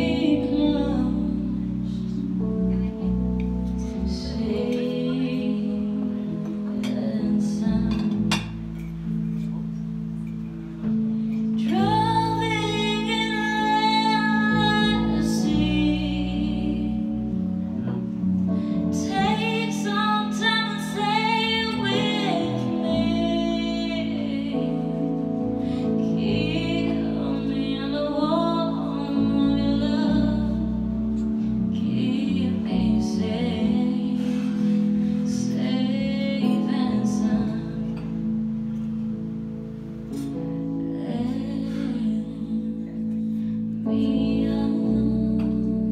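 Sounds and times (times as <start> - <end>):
woman singing a slow ballad: 0.0 - 9.2, 10.9 - 17.8, 18.5 - 39.4, 40.0 - 45.9
bass: 0.0 - 45.9
keyboard chords: 0.0 - 45.9.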